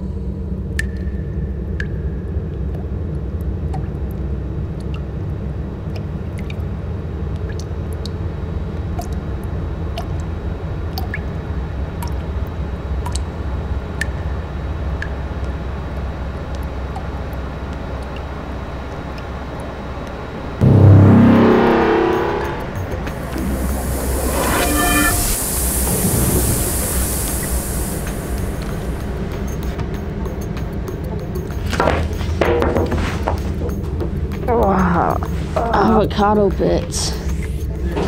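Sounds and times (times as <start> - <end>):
water drips: 0.7 - 5.2, 5.8 - 10.3, 10.9 - 11.4, 13.0 - 13.3
low rumbling drone: 20.6 - 31.1.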